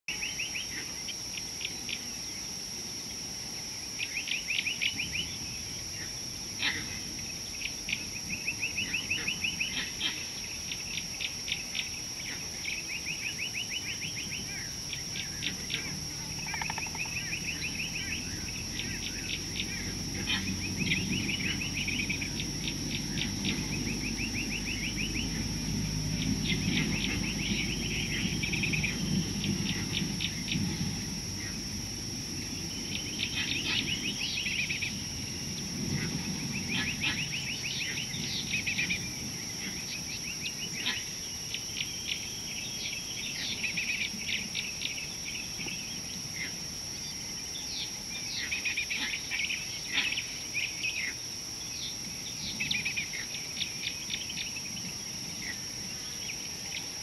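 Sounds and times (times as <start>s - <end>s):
steady high-pitched whine: 0.1s - 57.0s
rapid chattering animal calls: 13.8s - 25.6s, 32.9s - 35.0s, 36.0s - 40.0s
low rumble: 17.2s - 39.5s.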